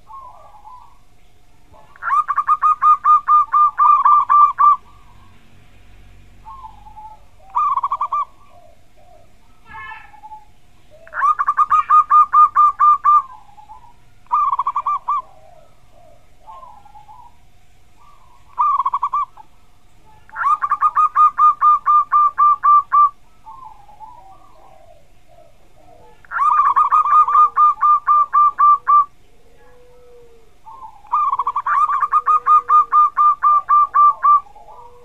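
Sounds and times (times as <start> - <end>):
dove cooing song: 0.0 - 35.0.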